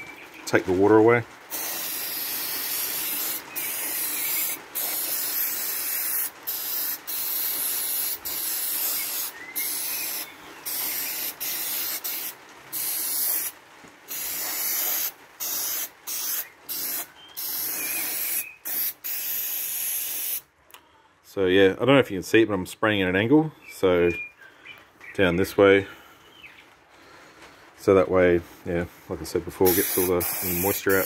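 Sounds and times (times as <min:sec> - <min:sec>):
aerosol spray hissing: 0:01.5 - 0:20.4, 0:29.6 - 0:31.0.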